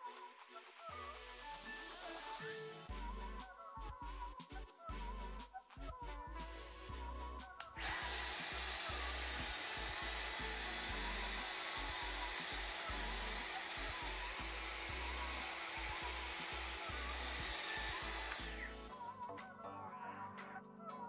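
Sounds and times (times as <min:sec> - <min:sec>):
trim router whining: 0:07.7 - 0:18.9.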